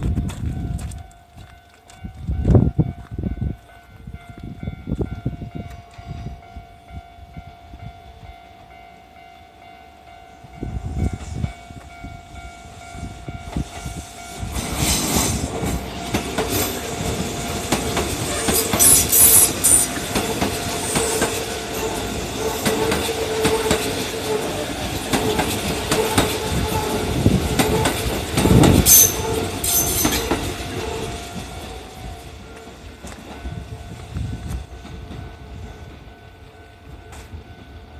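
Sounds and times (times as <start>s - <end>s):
train wheels clattering over rails: 13.4s - 31.8s
crossing alarm ringing: 15.7s - 37.9s.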